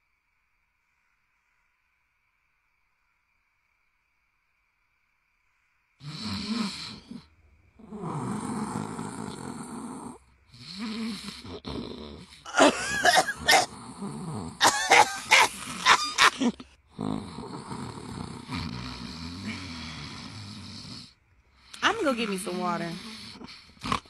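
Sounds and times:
man snoring: 6.0s - 24.0s
woman fake coughing: 12.5s - 13.7s, 14.6s - 16.6s.

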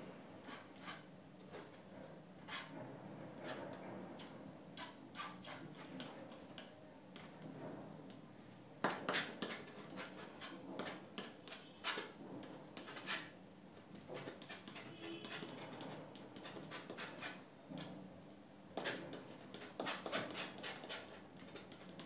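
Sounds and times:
palette knife scraping canvas: 0.4s - 1.7s, 4.8s - 6.3s, 8.9s - 12.2s, 12.8s - 13.3s, 14.0s - 17.4s, 18.8s - 22.0s.

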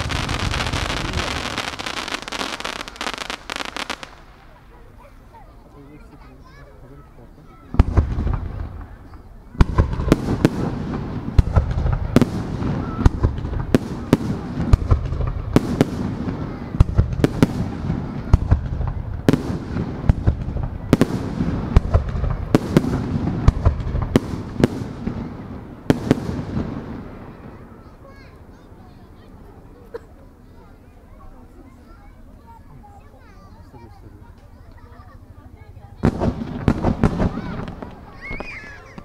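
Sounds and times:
firework shells bursting: 0.0s - 4.6s.

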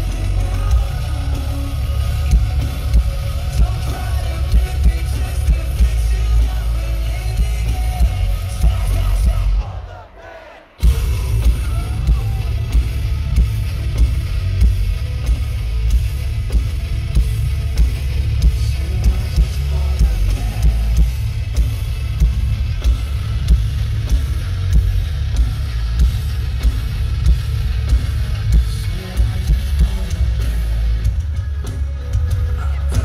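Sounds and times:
distorted guitars: 0.0s - 33.0s
drums: 0.0s - 33.0s
metalcore band playing live: 0.0s - 33.0s.

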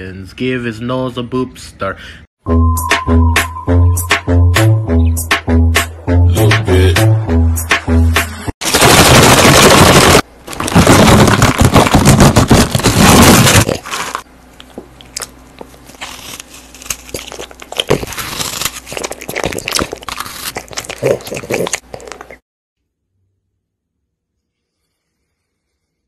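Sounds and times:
packet crinkling: 8.6s - 22.4s
dog crunching and chewing: 8.7s - 22.4s.

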